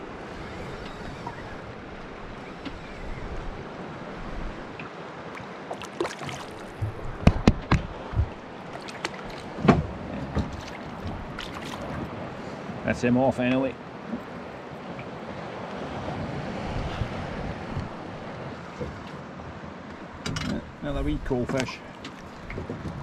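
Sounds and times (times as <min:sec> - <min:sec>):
water lapping against boat hull: 0:00.0 - 0:19.3, 0:19.9 - 0:23.0
fish splashing: 0:05.4 - 0:07.2, 0:07.9 - 0:12.1.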